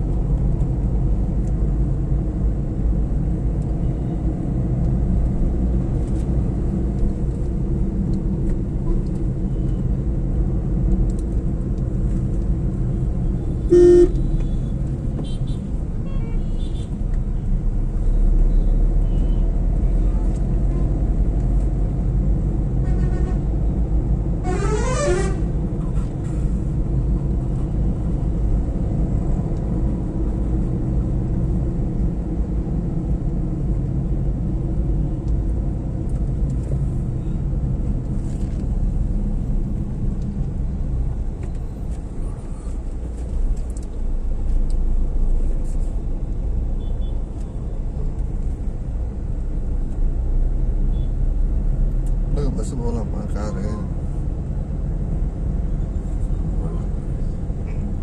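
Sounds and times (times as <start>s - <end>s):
car interior road noise: 0.0s - 58.0s
vehicle horn honking: 13.6s - 14.6s, 24.4s - 25.4s.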